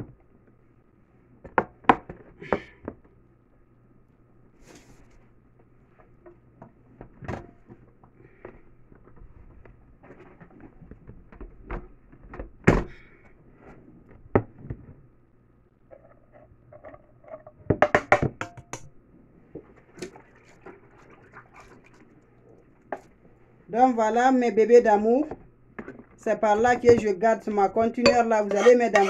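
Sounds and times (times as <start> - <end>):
kitchenware knocks and clinks: 17.7 - 18.9, 28.0 - 29.0
spoon scraping inside a saucepan: 28.4 - 29.0.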